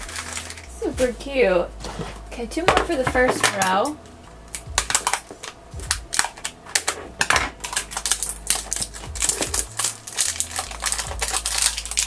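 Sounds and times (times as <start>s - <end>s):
plastic wrap crackling: 0.0s - 1.3s, 4.5s - 12.0s.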